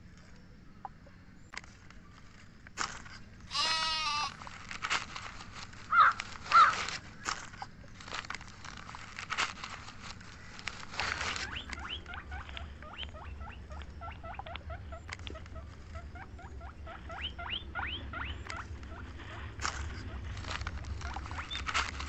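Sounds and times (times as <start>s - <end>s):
newspaper rustling: 4.2s - 11.7s, 19.0s - 22.0s.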